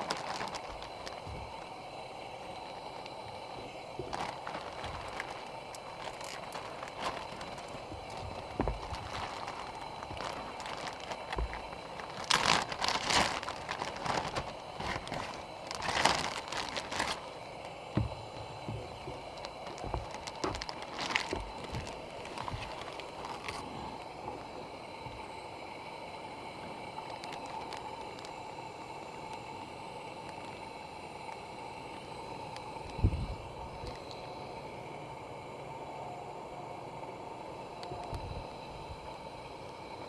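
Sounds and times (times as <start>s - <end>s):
rustling and crinkling handling: 0.0s - 1.8s, 3.6s - 25.2s, 27.0s - 28.4s
outdoor background hiss: 0.0s - 40.0s.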